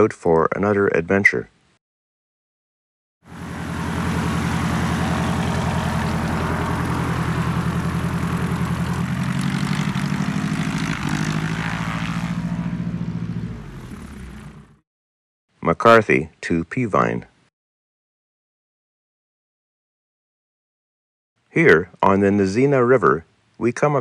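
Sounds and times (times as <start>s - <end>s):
propeller airplane engine running: 3.3s - 14.8s.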